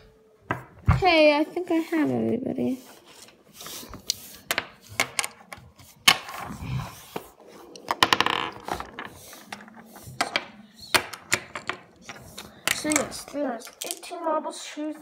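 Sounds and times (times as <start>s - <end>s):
scrape on table: 1.7s - 4.5s.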